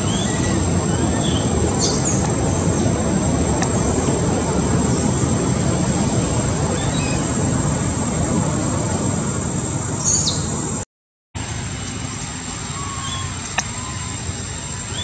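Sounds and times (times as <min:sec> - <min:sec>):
bird chirp: 0:00.0 - 0:02.3, 0:06.7 - 0:07.4, 0:10.0 - 0:10.6, 0:12.2 - 0:15.0
high-pitched insect drone: 0:00.0 - 0:10.8, 0:11.8 - 0:15.0
outdoor background rumble: 0:00.0 - 0:10.8, 0:11.4 - 0:15.0.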